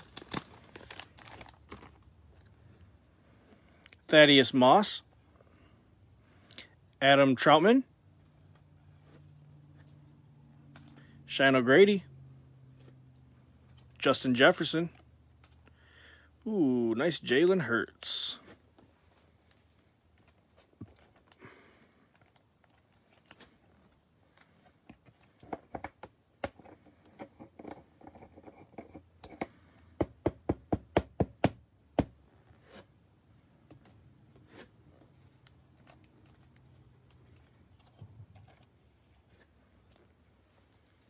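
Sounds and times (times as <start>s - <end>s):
cards and plastic holders tapping: 24.9s - 32.2s.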